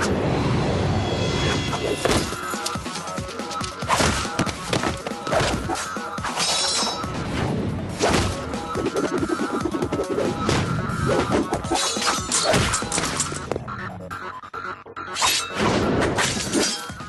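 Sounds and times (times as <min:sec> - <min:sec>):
background music: 0:00.0 - 0:17.0
sword hits and clashes: 0:06.3 - 0:07.0, 0:11.7 - 0:13.4.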